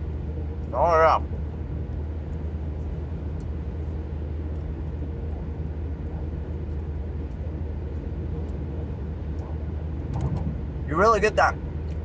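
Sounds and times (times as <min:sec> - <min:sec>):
car engine drone inside cabin: 0:00.0 - 0:12.0
faint ticks: 0:03.3 - 0:03.6.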